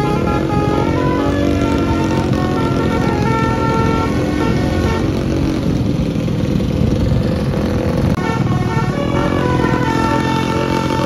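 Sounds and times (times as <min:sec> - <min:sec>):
bus horn playing a tune: 0:00.0 - 0:05.8, 0:08.1 - 0:11.0
motorcycle engine running: 0:00.0 - 0:11.0.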